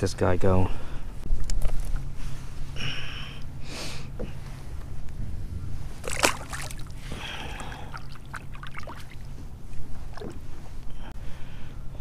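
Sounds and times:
water sloshing and trickling: 5.9s - 10.9s
splash in water: 6.0s - 6.9s.

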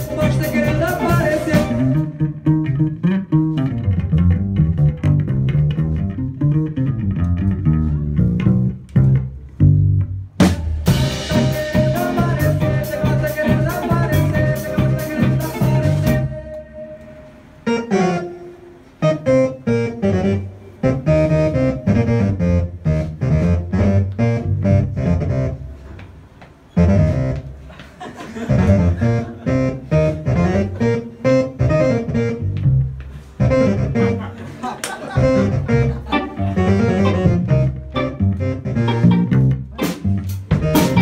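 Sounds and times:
live rock band playing: 0.0s - 25.2s, 28.4s - 41.0s
held keyboard note: 10.9s - 25.8s, 28.6s - 34.3s, 35.2s - 41.0s.

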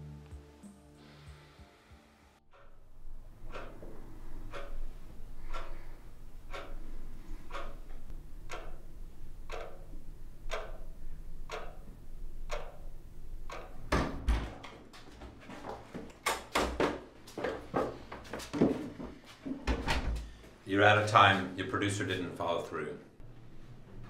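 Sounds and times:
wall clock ticking: 2.5s - 15.0s
door opening knocks and clatter: 13.8s - 20.3s.

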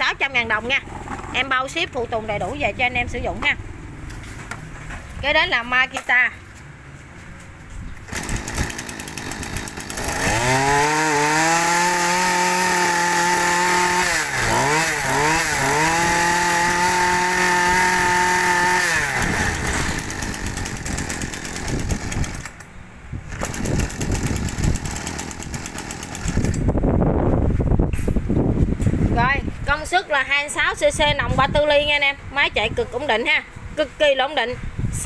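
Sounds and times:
brush cutter engine revving: 8.0s - 22.6s, 23.3s - 26.8s.

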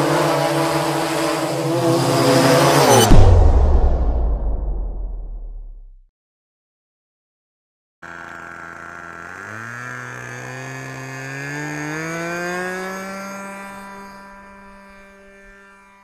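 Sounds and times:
model airplane engine revving: 0.0s - 3.0s, 8.0s - 16.0s.

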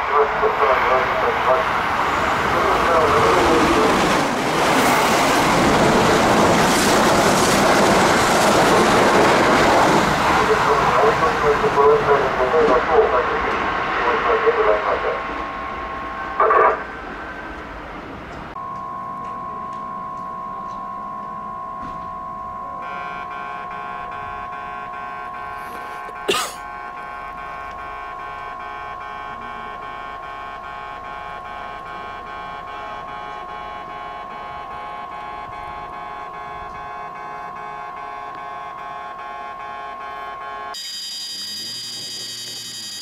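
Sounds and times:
level crossing warning bell: 18.6s - 43.0s.

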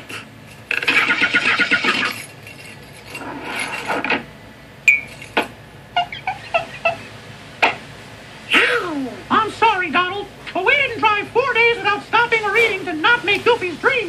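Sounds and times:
cartoon car engine sputtering: 0.0s - 4.2s, 4.9s - 7.8s.

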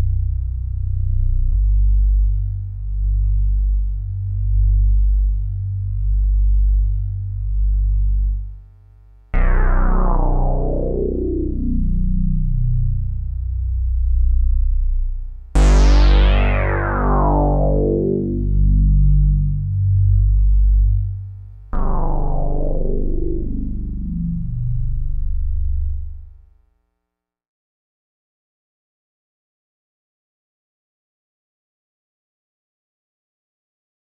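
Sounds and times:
synth hit sweeping downward: 9.4s - 21.1s, 21.8s - 26.3s
low synth drone pad: 9.4s - 26.4s.

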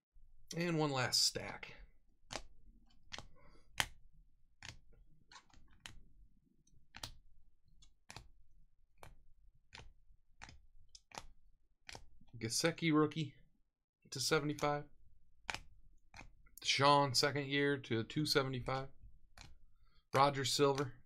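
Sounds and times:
trading cards clicking: 2.3s - 4.0s, 4.6s - 6.0s, 6.9s - 7.2s, 7.8s - 8.3s, 9.0s - 11.3s, 11.9s - 12.1s, 19.4s - 19.6s, 20.2s - 21.0s.

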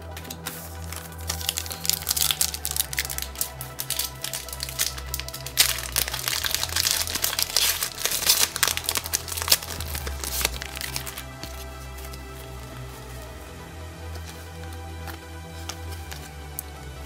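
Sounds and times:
foil wrapper crinkling: 0.2s - 12.3s.

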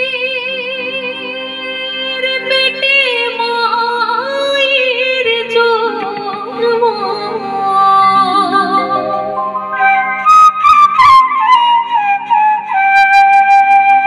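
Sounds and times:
woman singing into microphone: 0.0s - 10.4s
sustained instrumental accompaniment: 5.5s - 11.6s.

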